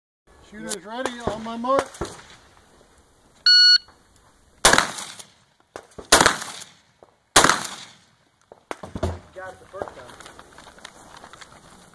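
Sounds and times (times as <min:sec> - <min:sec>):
shot timer beep: 0:03.5 - 0:03.9
shotgun shots with echo: 0:04.6 - 0:05.3, 0:06.0 - 0:06.8, 0:07.4 - 0:08.0.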